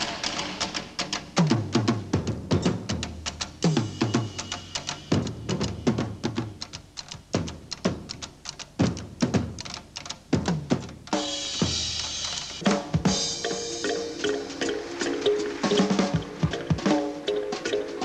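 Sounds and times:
held musical notes: 12.4 - 18.0.

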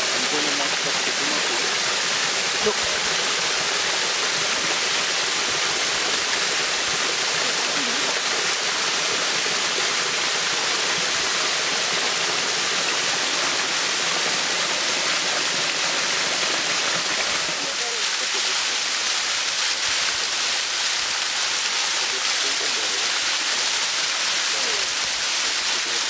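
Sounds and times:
waterfall rushing and splashing: 0.0 - 26.0.

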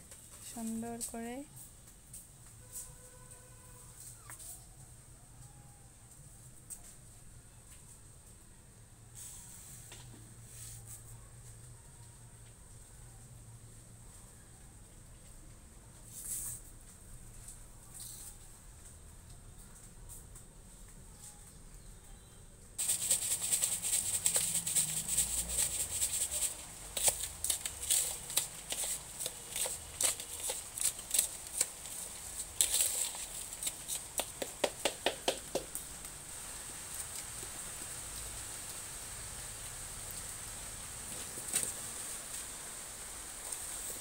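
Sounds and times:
trowel scraping soil: 22.8 - 34.6.

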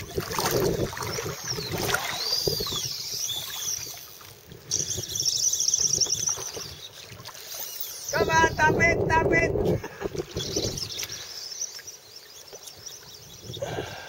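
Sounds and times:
wind noise: 0.0 - 3.0, 8.1 - 11.2
shallow water sloshing: 0.0 - 4.7
fishing reel drag buzzing: 0.0 - 14.0.

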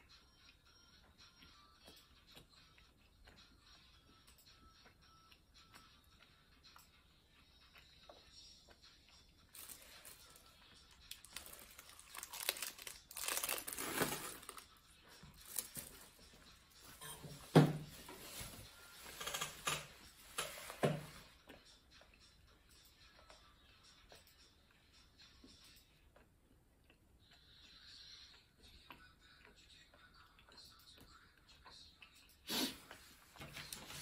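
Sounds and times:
plastic wrapper crinkling: 9.5 - 10.4, 11.1 - 14.7, 15.4 - 16.0.

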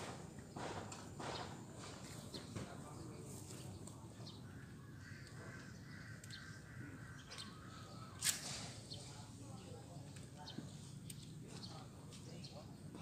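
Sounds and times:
bird calling: 4.1 - 9.3.

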